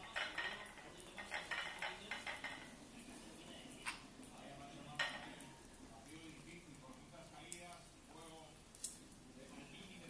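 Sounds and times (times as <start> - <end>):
plate clinking and scraping: 0.0 - 2.8.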